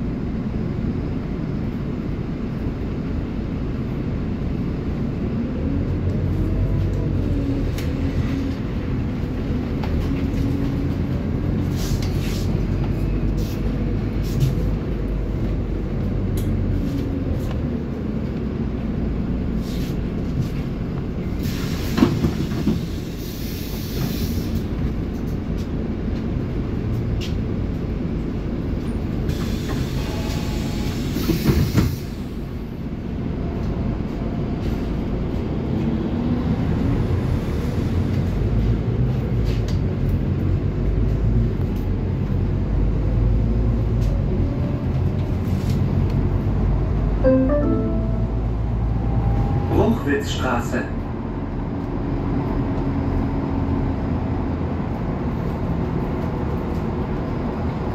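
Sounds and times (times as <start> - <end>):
bus engine and road rumble: 0.0 - 57.9.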